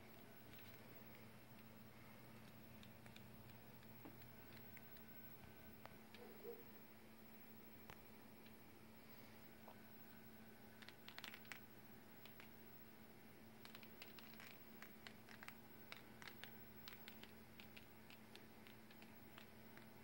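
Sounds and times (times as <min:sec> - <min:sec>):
low steady hum: 0:00.0 - 0:20.0
paint drops ticking on paper: 0:13.6 - 0:20.0.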